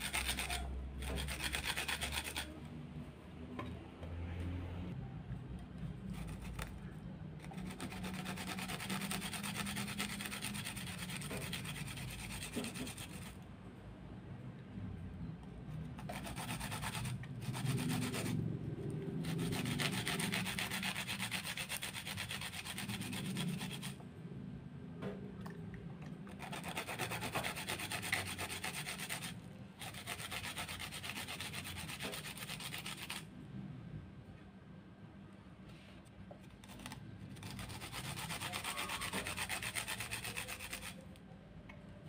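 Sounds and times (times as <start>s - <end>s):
pestle grinding in stone mortar: 0.0s - 2.6s, 7.4s - 13.3s, 26.3s - 33.2s.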